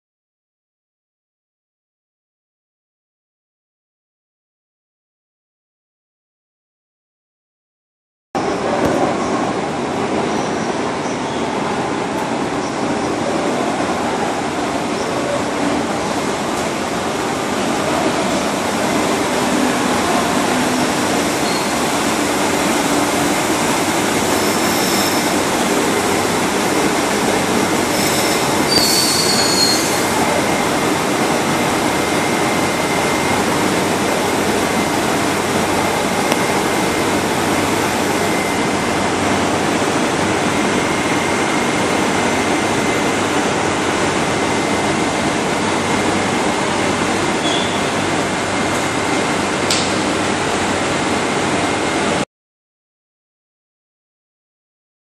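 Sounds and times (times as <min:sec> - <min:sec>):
train wheels rumbling on rail: 0:08.5 - 0:52.2
high wheel squeals: 0:21.4 - 0:21.8, 0:24.4 - 0:25.7, 0:27.8 - 0:30.4, 0:47.4 - 0:47.9.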